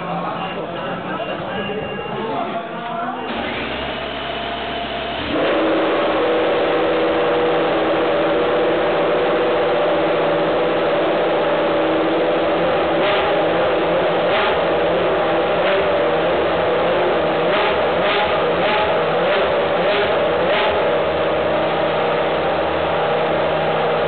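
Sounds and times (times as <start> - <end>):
race car engine idling fast: 0.0 - 24.0
starter motor whirring: 3.3 - 5.7.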